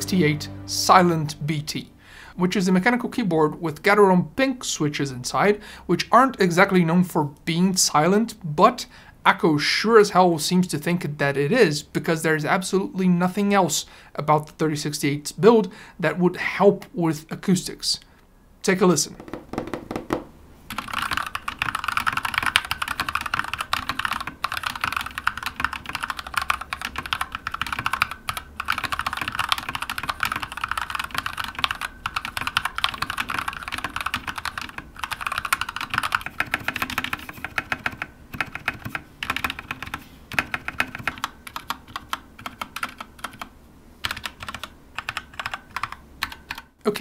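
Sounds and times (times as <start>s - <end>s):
mechanical keyboard typing: 20.7s - 46.7s.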